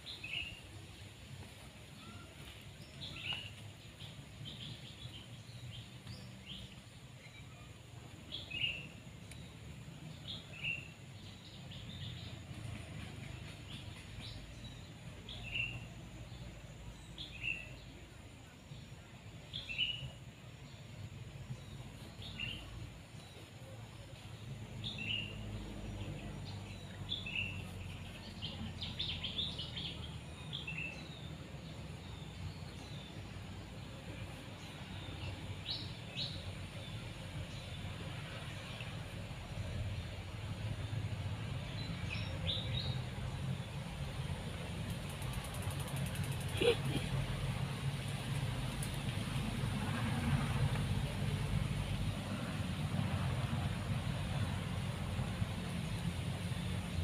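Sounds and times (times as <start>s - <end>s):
bird chirping: 21.5s - 38.8s, 41.5s - 44.2s.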